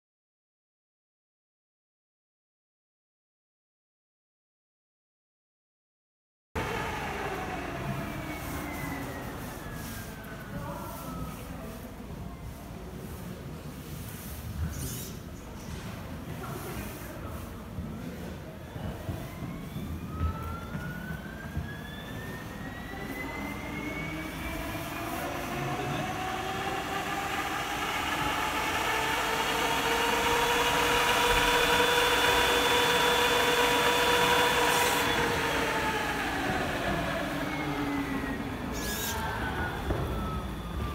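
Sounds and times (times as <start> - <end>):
small fan whirring: 21.3 - 40.8.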